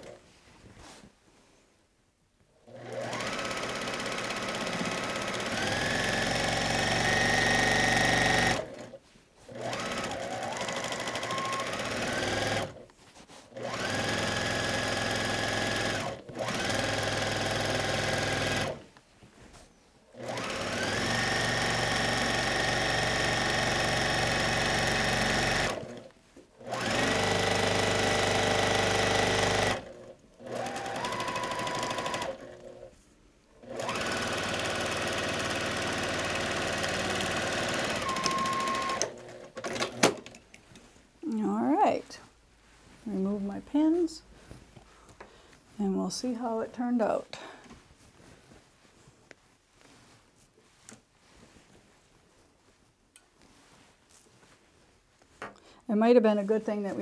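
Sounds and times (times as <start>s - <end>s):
sewing machine stitching: 2.6s - 12.8s, 13.5s - 18.8s, 20.2s - 32.9s, 33.6s - 40.4s.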